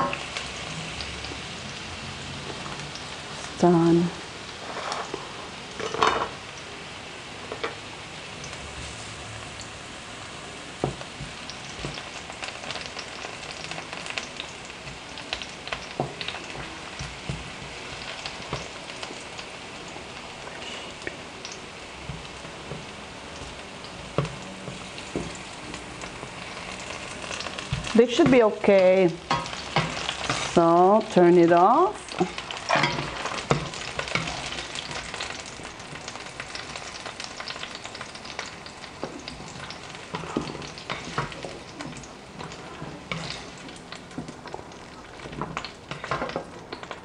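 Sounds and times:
vegetables sizzling in hot oil: 0.0s - 47.0s
spatula clicking and scraping pan: 27.7s - 30.6s, 32.1s - 35.4s, 39.0s - 46.9s.

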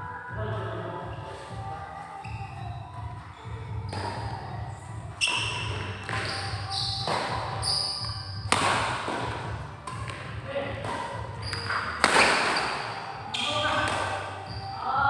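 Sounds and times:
racket striking shuttlecock: 3.9s - 4.3s, 5.2s - 14.5s.

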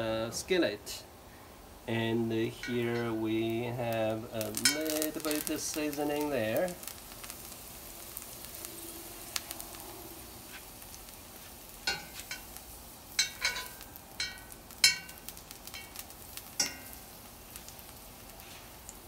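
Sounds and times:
oil sizzling in a skillet: 1.6s - 19.0s
metal tongs clinking on a pan: 4.4s - 6.8s, 11.8s - 18.0s.

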